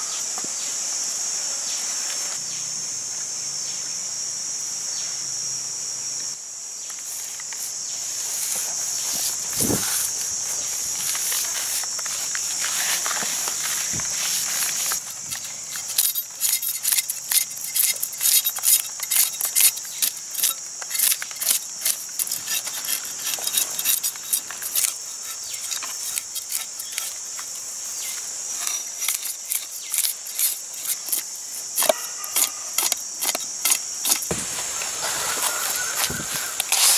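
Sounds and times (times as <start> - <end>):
insects droning: 0.0 - 36.9
knife scraping fish scales: 10.8 - 34.4, 35.0 - 36.9.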